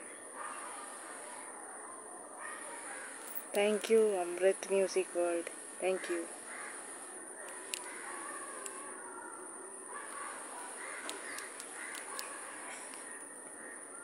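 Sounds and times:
crows cawing: 2.4s - 3.3s, 5.9s - 14.0s.

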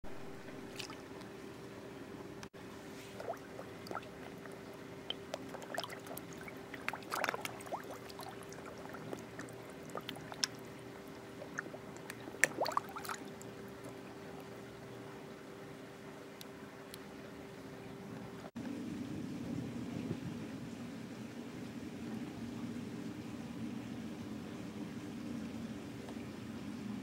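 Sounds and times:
faint steady hum: 0.0s - 27.0s
water plops and drips: 0.6s - 1.3s, 3.1s - 14.0s.

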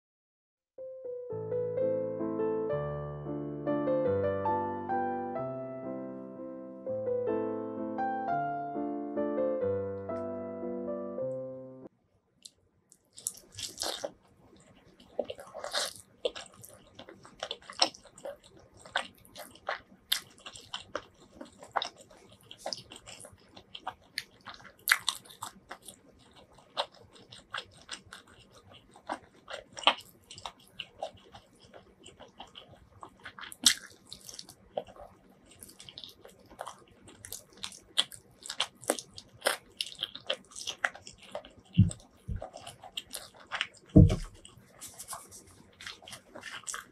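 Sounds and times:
chewing chicken drumstick: 12.4s - 46.9s.

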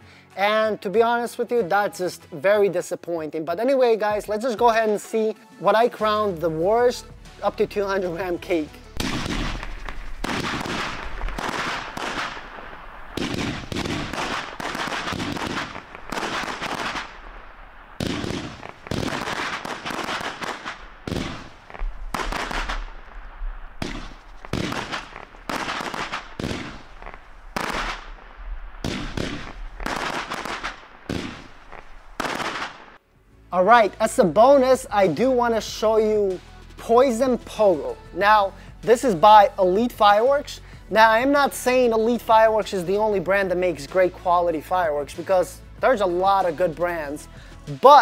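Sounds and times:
fireworks cake sharp bangs: 8.0s - 33.0s.

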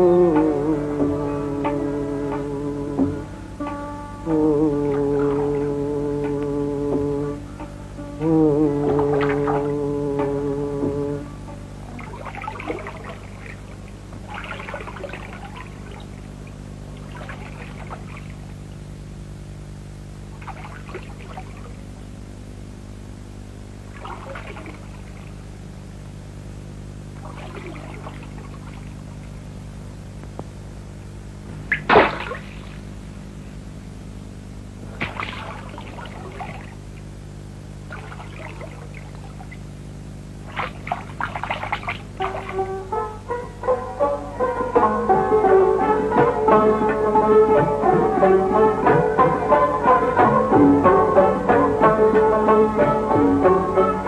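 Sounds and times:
low hum: 0.0s - 54.0s
lake water splashing: 4.8s - 6.5s, 8.7s - 10.4s, 11.8s - 18.6s, 20.3s - 22.0s, 23.8s - 25.6s, 27.2s - 29.4s, 31.7s - 33.0s, 34.8s - 43.2s.

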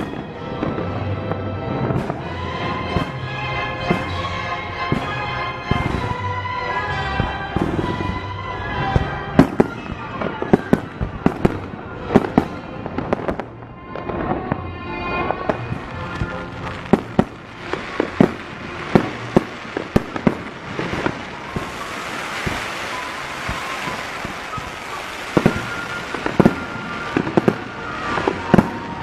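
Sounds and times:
fireworks bangs: 0.0s - 29.0s
music playing: 0.0s - 29.0s
fireworks hissing: 15.6s - 29.0s.

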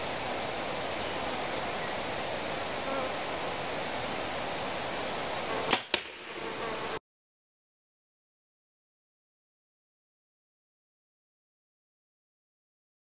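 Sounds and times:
outdoor ambient hiss: 0.0s - 7.0s
bow shot snaps: 5.7s - 6.4s.

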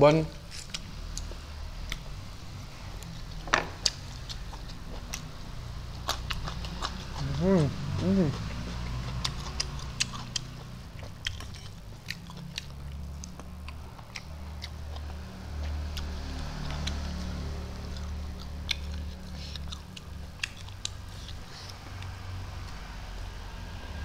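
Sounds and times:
man chewing and lip smacking: 0.6s - 2.2s, 3.0s - 22.8s
wet mouth clicks: 8.2s - 14.8s.

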